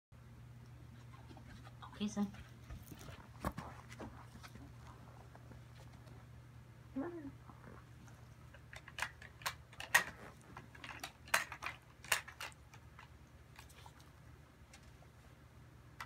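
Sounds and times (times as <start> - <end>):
plastic toy clicking and clattering: 8.5 - 13.8.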